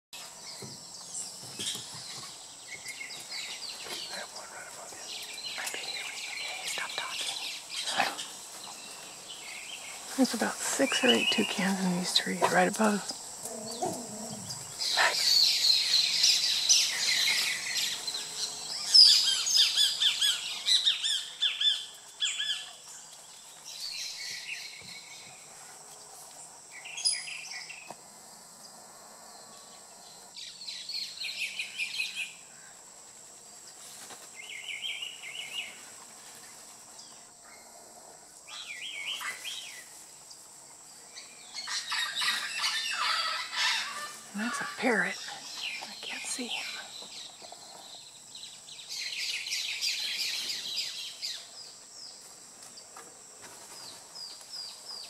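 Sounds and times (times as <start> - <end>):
toucans calling: 0.5 - 22.8, 41.2 - 47.9.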